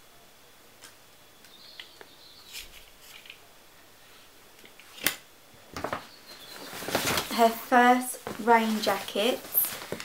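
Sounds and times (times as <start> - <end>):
tulle rustling: 6.4 - 10.0.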